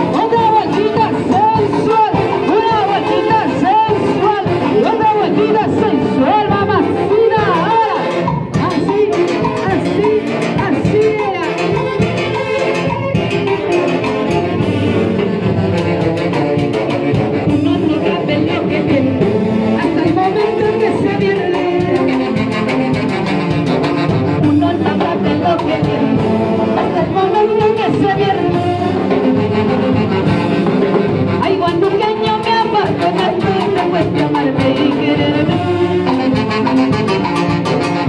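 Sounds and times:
woman singing into a microphone: 0:00.0 - 0:11.7, 0:17.5 - 0:22.4, 0:24.4 - 0:29.2, 0:31.4 - 0:36.3
saxophone band playing dance music: 0:00.0 - 0:38.0.

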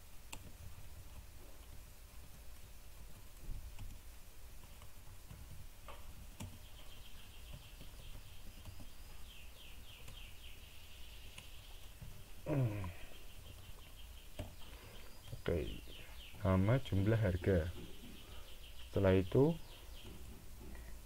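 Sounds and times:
keyboard clicks: 0:00.2 - 0:06.6
small bird chirping: 0:04.6 - 0:21.0.

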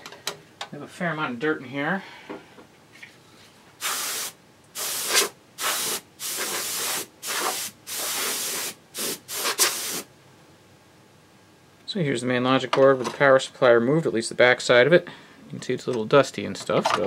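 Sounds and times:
canned air hissing blasts: 0:03.8 - 0:10.1.

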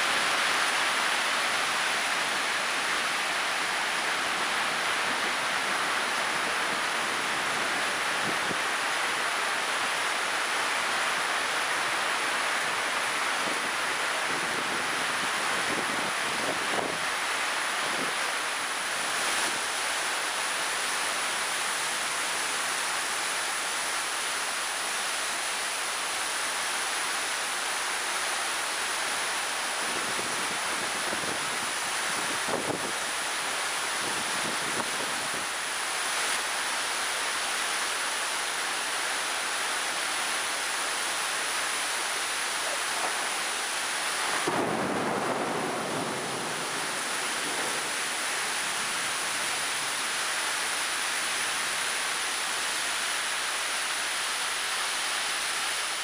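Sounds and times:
heavy rain pouring: 0:00.0 - 0:56.0.

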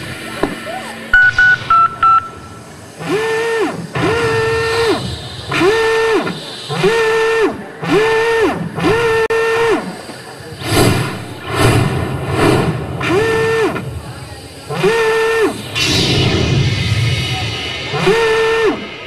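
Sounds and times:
low pulsing backing: 0:00.0 - 0:19.0
short high electronic beeps: 0:01.1 - 0:02.7.

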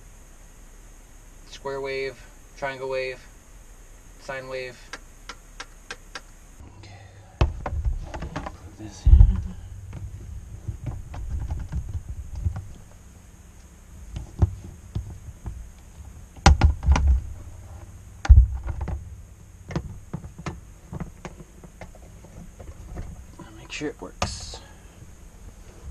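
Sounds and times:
heavy thumps: 0:06.9 - 0:13.1, 0:14.0 - 0:23.4.

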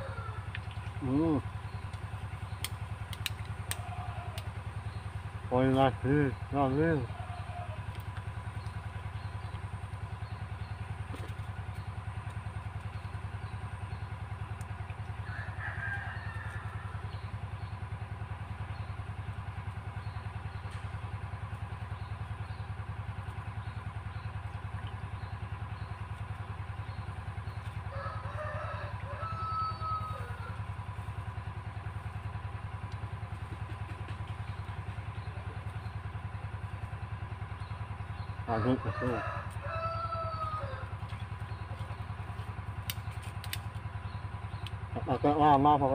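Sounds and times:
diesel engine droning: 0:00.0 - 0:45.9.

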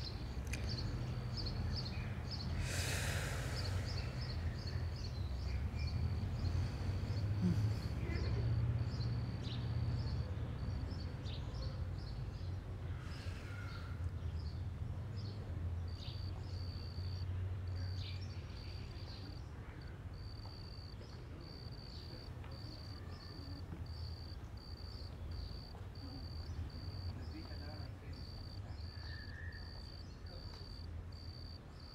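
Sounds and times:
bird chirps: 0:15.2 - 0:31.9
high insect trill: 0:20.2 - 0:31.9.

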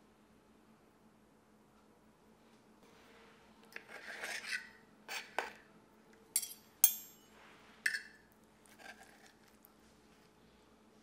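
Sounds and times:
knife and fork scraping a plate: 0:03.8 - 0:05.6, 0:07.9 - 0:09.6
metal clinking on a plate: 0:06.4 - 0:07.3.

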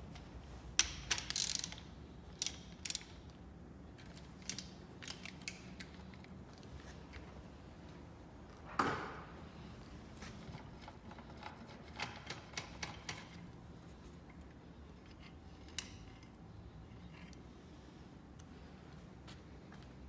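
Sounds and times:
ratchet wrench clicking: 0:00.8 - 0:03.3, 0:04.1 - 0:05.9.

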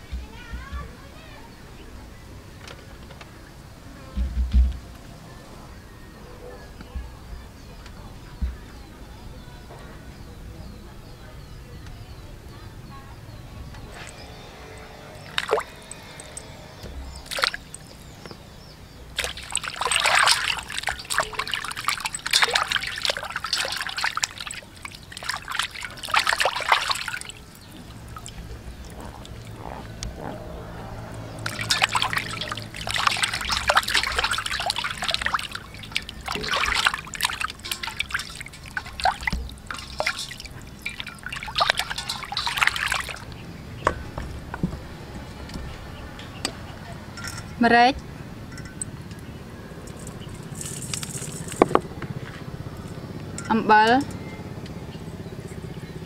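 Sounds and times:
water sloshing in metal basin: 0:13.7 - 0:45.0, 0:46.4 - 0:54.1.

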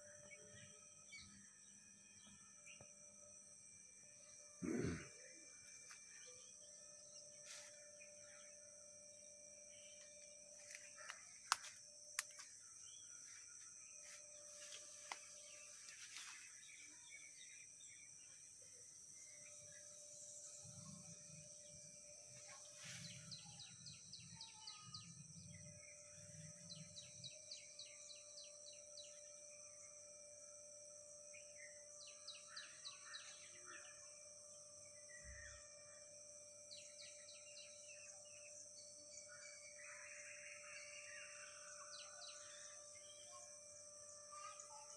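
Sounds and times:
steady high-pitched hum: 0:00.0 - 0:44.9
sharp clicks: 0:10.7 - 0:12.5.

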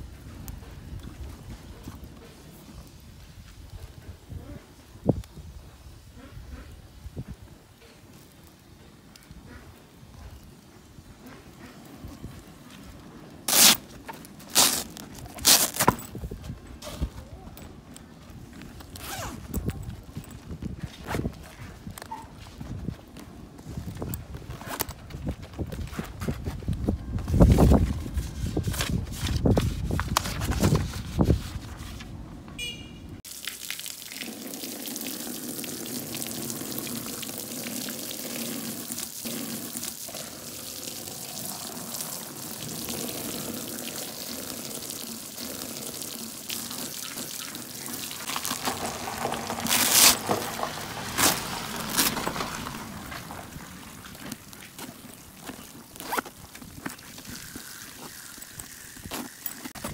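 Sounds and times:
water pouring and splashing: 0:12.8 - 0:16.4, 0:33.2 - 0:59.9
paper and fabric rustling: 0:13.5 - 0:17.3, 0:24.4 - 0:32.2, 0:48.2 - 0:56.8.

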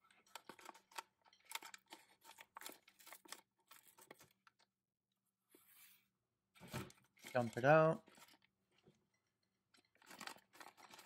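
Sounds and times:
plastic packaging crinkling: 0:09.8 - 0:11.0.

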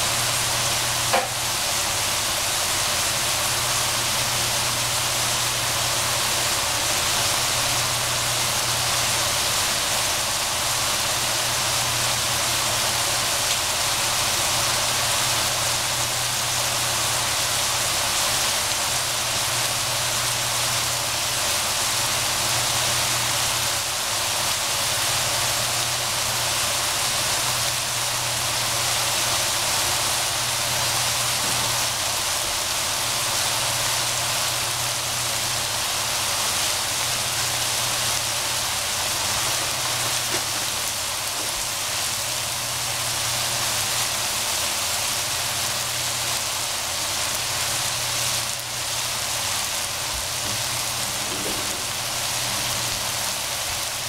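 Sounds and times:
vegetables sizzling in a pan: 0:00.0 - 0:54.0.

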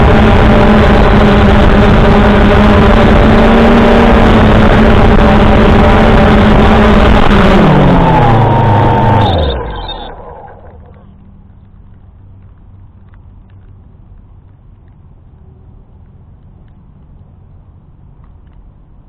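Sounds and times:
drone propellers buzzing: 0:00.0 - 0:11.6.

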